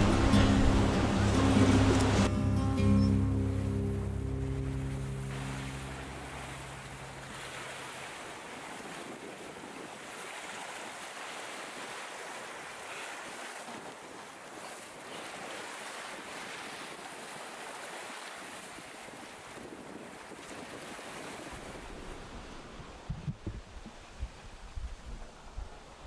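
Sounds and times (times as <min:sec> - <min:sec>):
wind on microphone: 0:00.0 - 0:02.3, 0:04.8 - 0:10.9, 0:18.6 - 0:26.0
background music: 0:00.0 - 0:07.4
rushing sea water: 0:00.0 - 0:26.0.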